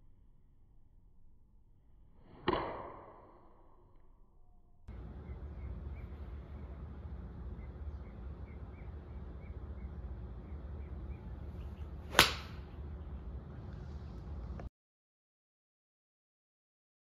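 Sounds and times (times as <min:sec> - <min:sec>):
low background rumble: 0:03.0 - 0:14.7
golf iron striking ball: 0:12.0 - 0:12.8.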